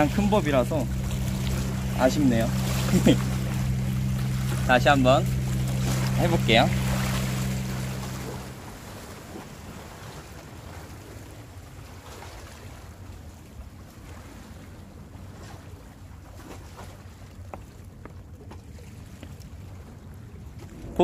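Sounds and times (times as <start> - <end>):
sea water washing against rocks: 0.0 - 11.4.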